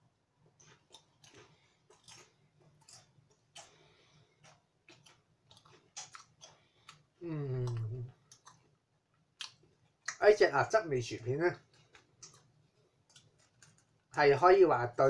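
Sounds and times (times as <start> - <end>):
chewing potato chip crunches: 0.4 - 10.3, 11.1 - 14.6
person humming mm: 7.2 - 8.2.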